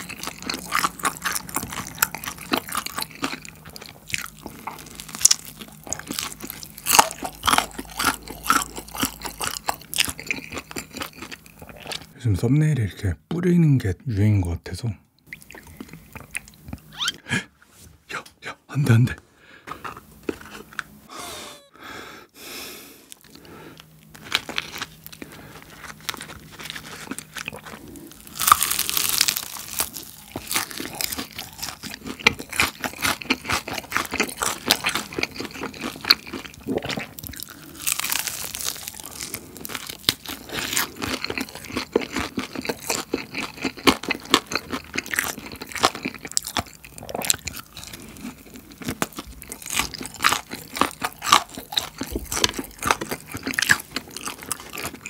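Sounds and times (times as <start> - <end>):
crunching bites into fried chicken: 0.0 - 12.1, 23.1 - 55.0
wet chewing: 0.0 - 12.2, 23.1 - 55.0.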